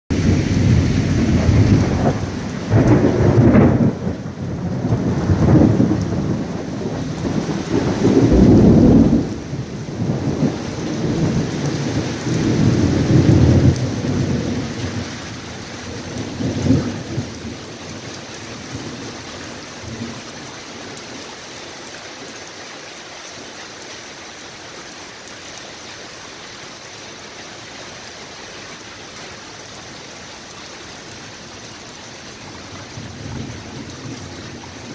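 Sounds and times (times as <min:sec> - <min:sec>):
rolling thunder: 0:00.1 - 0:19.1, 0:32.7 - 0:34.9
rain hissing: 0:00.1 - 0:34.9.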